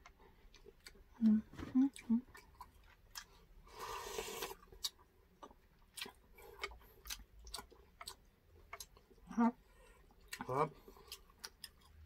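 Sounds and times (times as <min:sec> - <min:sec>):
faint clicks of chewing and utensils: 0:00.0 - 0:03.4, 0:04.4 - 0:09.2, 0:09.8 - 0:12.0
slurp of broth from a spoon: 0:03.7 - 0:04.6.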